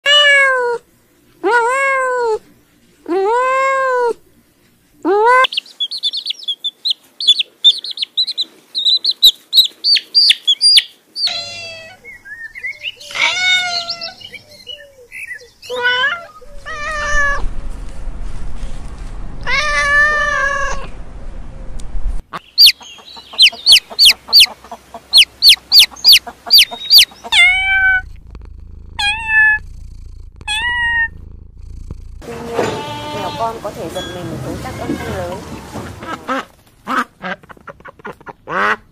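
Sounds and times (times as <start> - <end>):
kittens meowing: 11.2 - 12.1, 13.0 - 17.4, 19.4 - 20.9, 25.2 - 28.2, 29.0 - 31.2.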